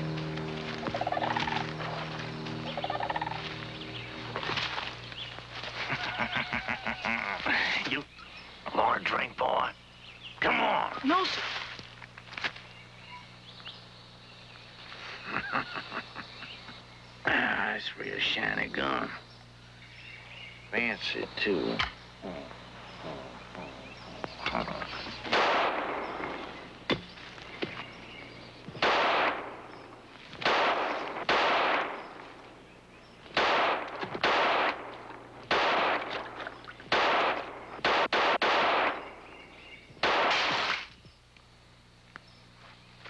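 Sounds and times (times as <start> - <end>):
gunshots with echoing tail: 25.3 - 26.3, 28.8 - 29.8, 30.4 - 32.1, 33.4 - 39.1, 40.0 - 40.8.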